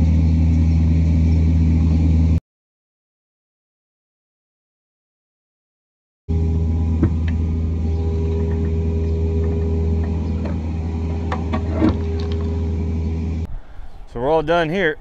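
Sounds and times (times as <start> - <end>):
excavator diesel engine running: 6.3 - 15.0.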